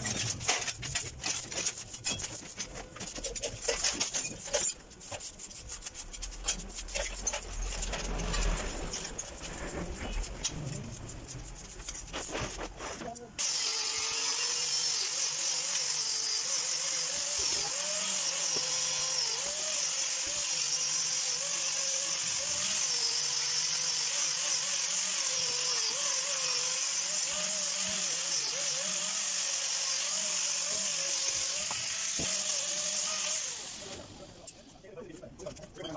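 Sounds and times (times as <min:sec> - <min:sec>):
angle grinder grinding metal: 0:13.0 - 0:34.6.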